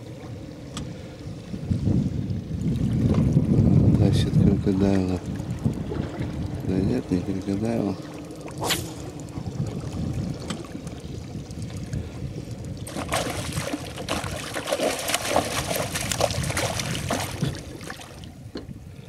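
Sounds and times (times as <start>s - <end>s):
steady low rumble: 0.0s - 19.0s
water splashing: 4.7s - 18.5s.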